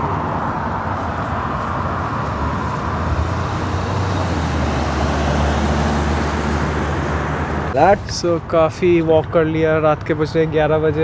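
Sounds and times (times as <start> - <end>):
car driving past: 0.0 - 7.8
low engine hum: 0.0 - 7.8.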